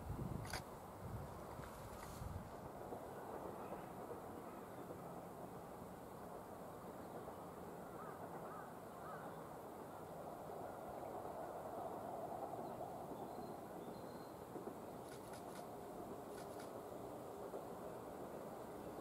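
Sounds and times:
distant bird calls: 7.9s - 9.4s, 13.2s - 15.7s
faint ticks: 16.3s - 16.8s.

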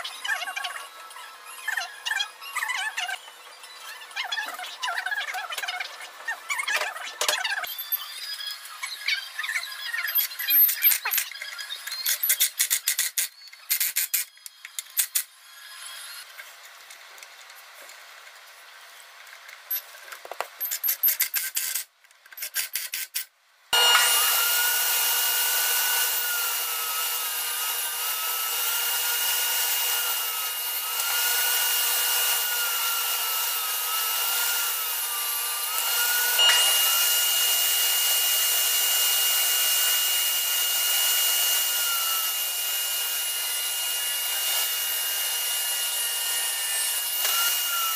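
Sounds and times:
table saw cutting wood: 0.0s - 11.7s, 23.7s - 47.9s.

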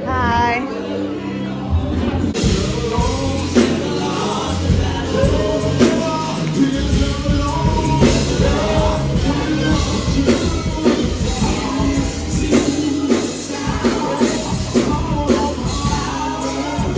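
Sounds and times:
gospel singers with band: 0.0s - 16.9s.

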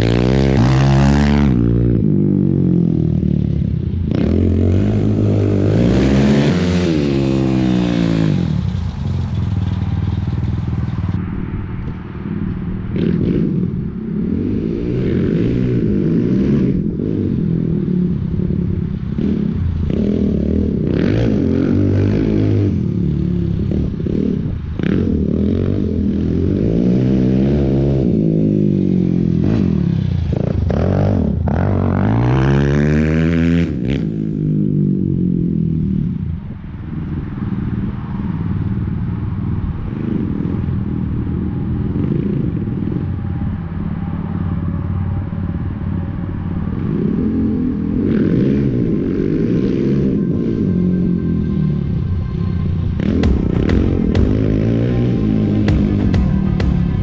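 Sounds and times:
off-road vehicle engine revving: 0.0s - 11.2s, 14.3s - 34.7s, 46.7s - 57.0s.

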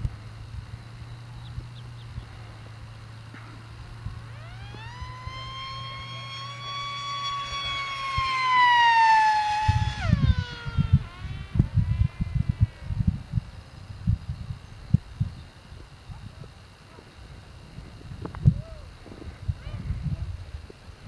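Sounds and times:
model plane motor whining: 2.6s - 13.0s.

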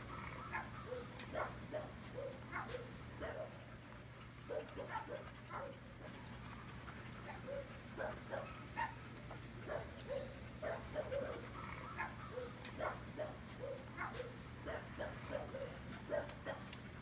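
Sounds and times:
steady low hum: 0.0s - 17.0s
dog barking: 0.4s - 3.6s, 4.5s - 5.8s, 7.3s - 9.0s, 9.6s - 16.7s.

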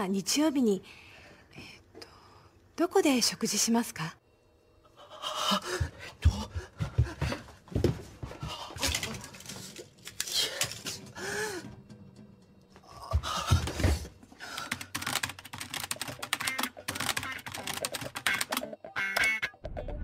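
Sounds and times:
person panting and gasping: 5.0s - 9.3s, 10.3s - 11.8s, 12.9s - 15.0s.

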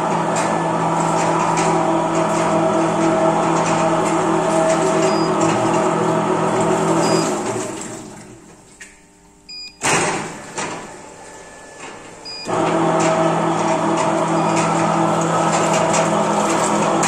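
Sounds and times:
motor humming: 0.0s - 8.5s, 9.5s - 17.0s
short beeps: 7.0s - 7.3s, 9.5s - 9.8s.

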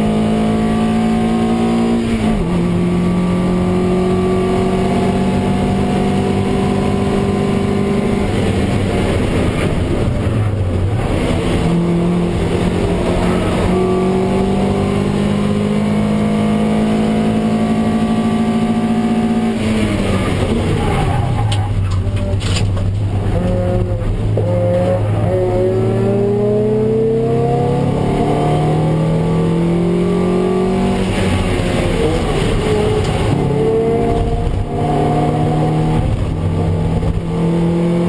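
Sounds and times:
race car engine running hard: 0.0s - 38.0s
wind noise: 4.7s - 14.6s, 30.6s - 38.0s.

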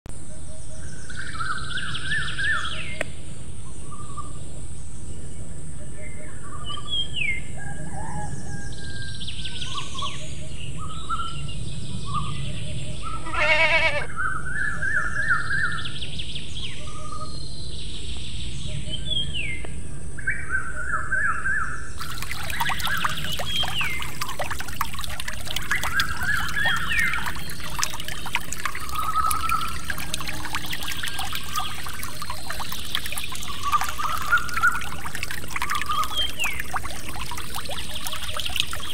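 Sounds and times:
short quavering bleat: 13.2s - 14.1s
water trickling from hand pump: 22.0s - 38.9s.

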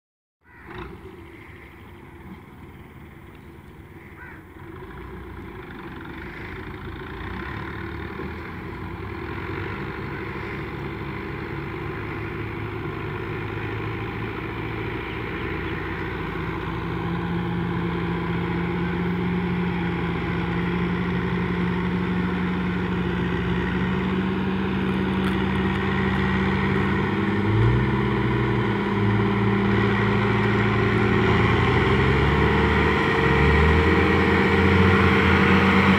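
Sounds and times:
tractor diesel engine running: 0.4s - 35.9s.

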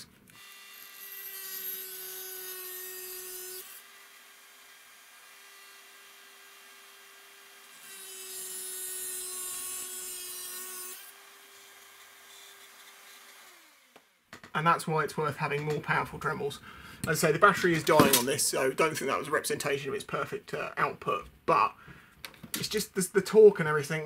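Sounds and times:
rotary tool grinding metal: 0.3s - 13.9s.

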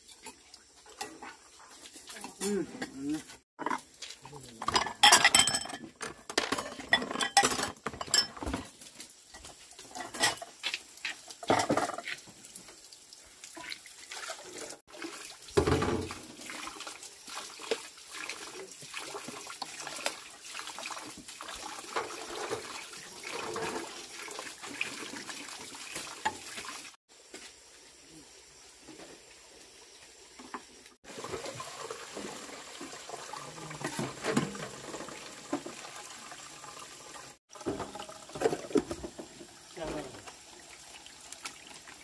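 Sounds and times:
water running from hose: 0.0s - 5.4s, 7.0s - 27.0s, 31.0s - 42.0s
ceramic bowls clattering: 4.6s - 8.7s, 9.9s - 10.6s, 11.4s - 12.0s
dishes clinking: 4.6s - 8.7s, 9.9s - 10.5s.

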